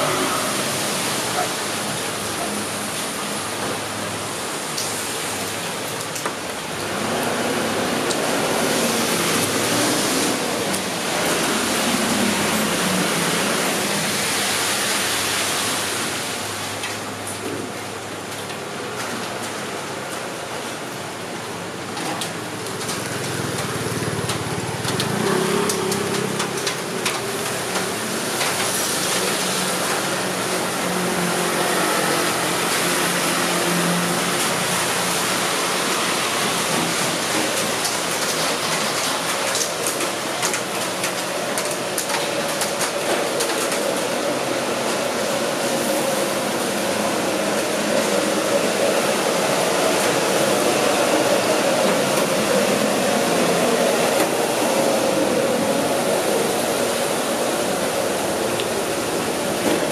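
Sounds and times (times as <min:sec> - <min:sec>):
rain: 0:00.0 - 0:59.9
car engines passing: 0:22.7 - 0:29.6.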